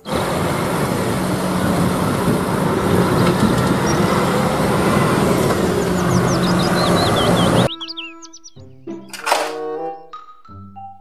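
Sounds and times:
diesel engine humming: 0.0s - 8.5s.

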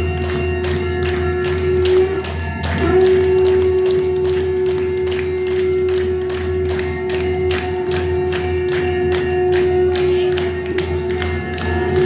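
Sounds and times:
devotional music held note: 0.0s - 12.0s
struck percussion beat: 0.0s - 12.0s.

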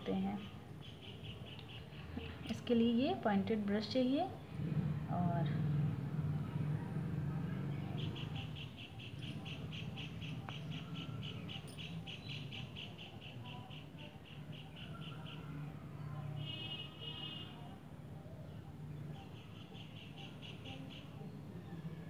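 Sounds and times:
rapid high-pitched chirp: 8.0s - 15.5s.

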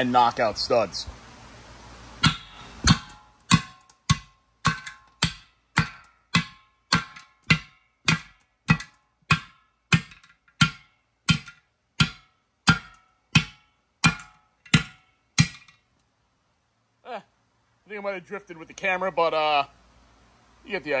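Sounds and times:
hammer striking metal: 2.2s - 15.8s.

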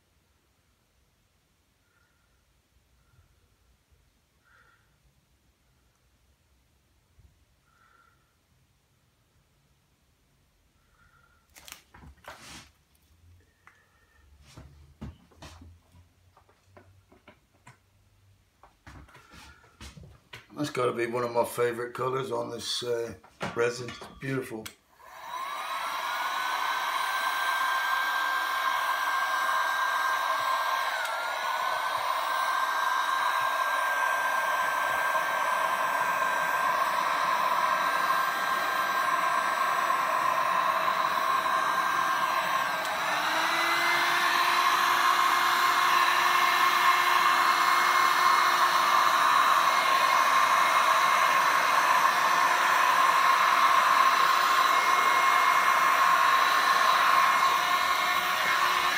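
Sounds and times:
heat gun fan whine: 22.6s - 58.9s.

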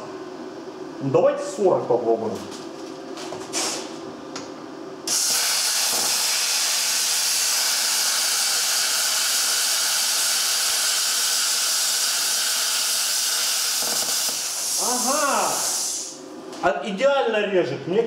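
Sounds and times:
plasma cutter hissing: 5.1s - 16.2s.

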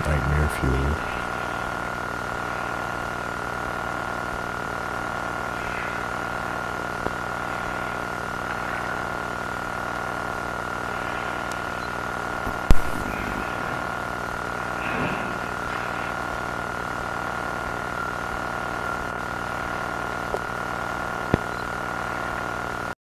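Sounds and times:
low droning hum: 0.0s - 22.4s
thin high whine: 0.0s - 23.0s
sharp loud click: 12.5s - 13.5s.

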